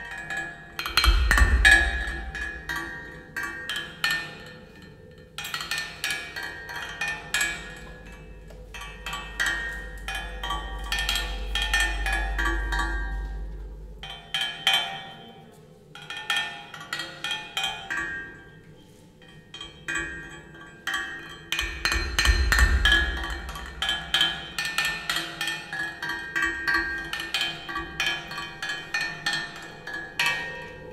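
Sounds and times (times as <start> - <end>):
metallic percussion rhythm: 0.0 - 30.9
deep rumble: 22.1 - 24.2.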